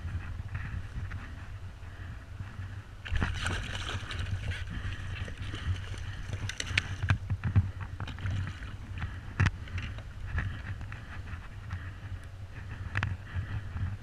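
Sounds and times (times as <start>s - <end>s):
steady low rumble: 0.0s - 14.0s
fish splashing water: 3.1s - 7.1s.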